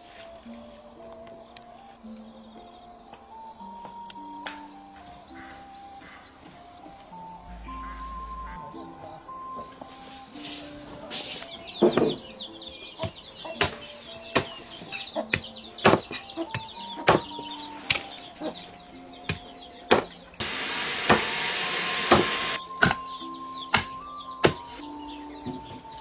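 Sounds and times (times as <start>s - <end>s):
steady hiss: 0.0s - 12.6s, 20.1s - 26.0s
cleaver chopping bones on wood: 15.3s - 17.3s, 19.3s - 20.1s, 22.8s - 23.1s, 23.7s - 24.6s.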